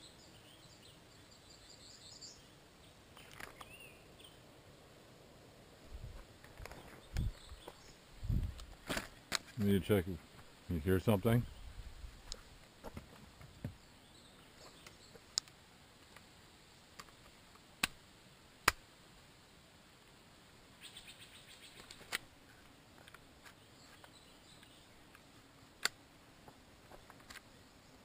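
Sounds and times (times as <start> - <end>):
gear and rifle clicks and knocks: 3.2 - 3.7, 6.4 - 7.8, 21.8 - 24.2, 25.1 - 27.5.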